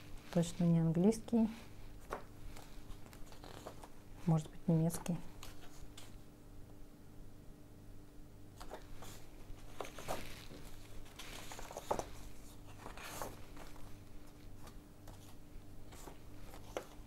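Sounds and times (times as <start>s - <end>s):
faint steady hum: 0.0s - 17.0s
paper pages rustling: 1.8s - 4.0s, 5.3s - 6.2s, 8.6s - 17.0s.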